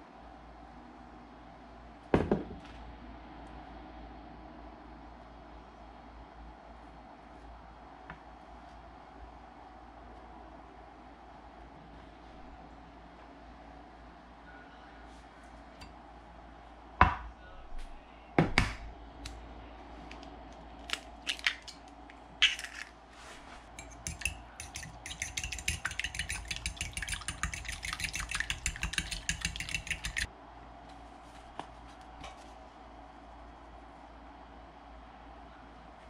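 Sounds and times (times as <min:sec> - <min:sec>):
fork beating egg in ceramic bowl: 0:23.8 - 0:30.3.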